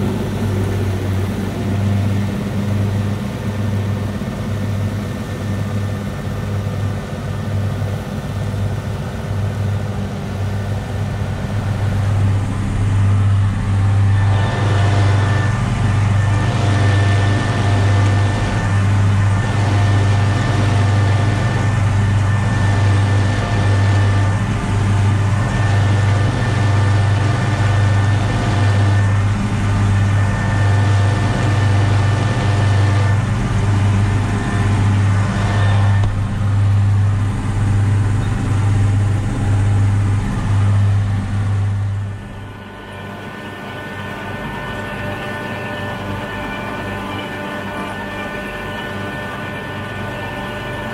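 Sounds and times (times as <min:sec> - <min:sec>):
high whine: 0:00.0 - 0:50.9
tractor diesel engine running: 0:00.0 - 0:50.9.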